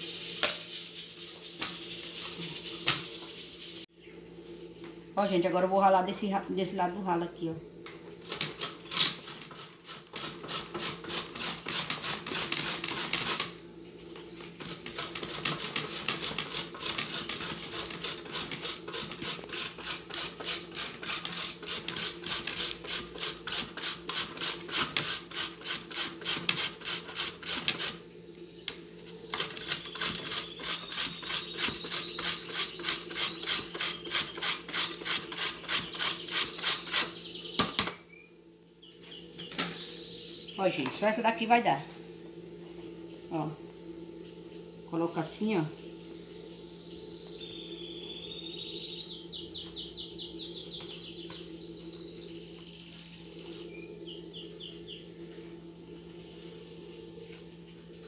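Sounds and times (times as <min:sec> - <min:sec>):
carrot grating on metal grater: 0:08.6 - 0:13.5, 0:14.6 - 0:28.0, 0:29.4 - 0:37.1.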